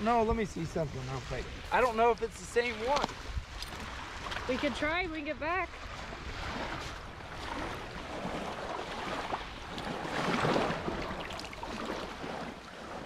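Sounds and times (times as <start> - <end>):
waves washing on pebbles: 0.1 - 13.0
water splashing by hand: 5.9 - 13.0.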